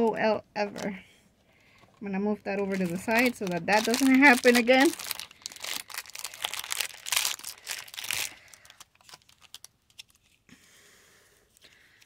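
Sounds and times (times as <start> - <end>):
packaging crinkling and tearing: 1.6 - 10.4.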